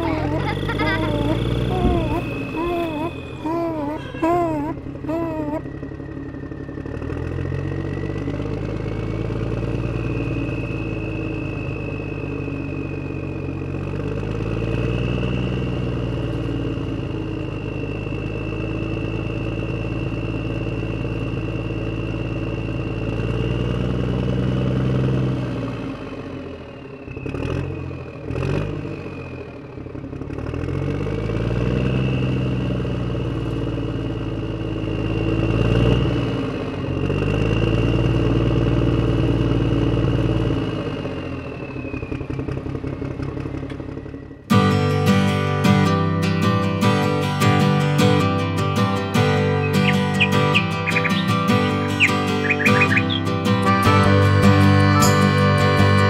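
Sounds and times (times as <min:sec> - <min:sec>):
steady high whine: 0:00.0 - 0:23.3
tractor engine revving: 0:00.0 - 0:26.1, 0:30.0 - 0:56.0.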